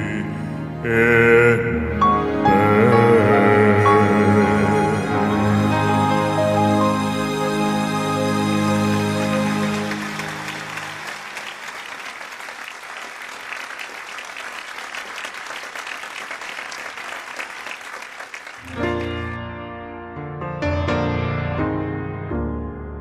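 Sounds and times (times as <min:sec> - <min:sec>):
piano music: 0:00.0 - 0:11.2, 0:18.6 - 0:23.0
audience applause: 0:08.4 - 0:19.4.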